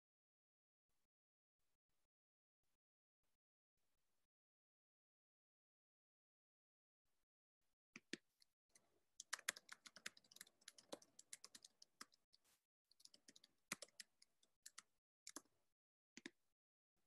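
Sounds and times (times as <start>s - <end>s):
faint keyboard typing: 9.2s - 15.5s.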